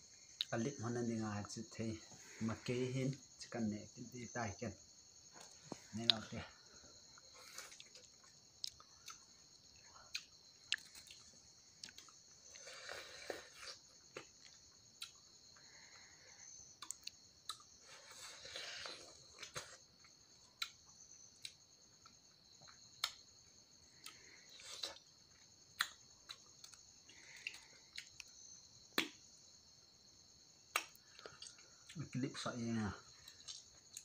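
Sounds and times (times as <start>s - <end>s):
high insect chirr: 0.0s - 34.0s
person chewing food: 5.3s - 15.6s, 16.7s - 28.4s, 33.1s - 34.0s.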